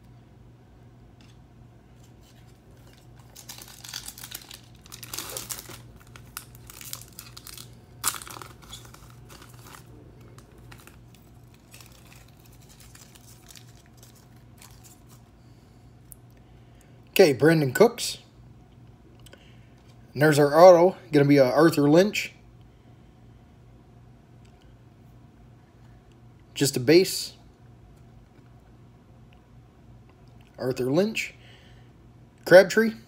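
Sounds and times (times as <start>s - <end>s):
low steady hum: 0.0s - 33.0s
foil wrapper tearing: 2.2s - 15.3s.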